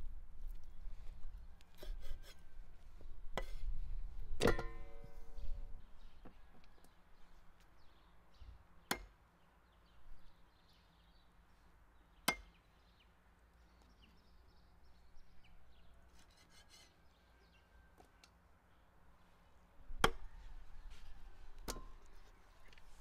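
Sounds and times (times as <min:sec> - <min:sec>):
cleaver chopping on wooden block: 0:12.3 - 0:12.6.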